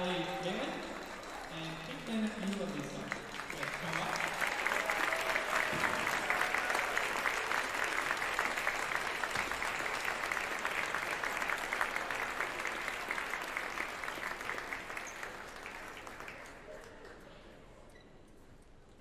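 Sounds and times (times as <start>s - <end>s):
audience applause: 0.0s - 17.2s.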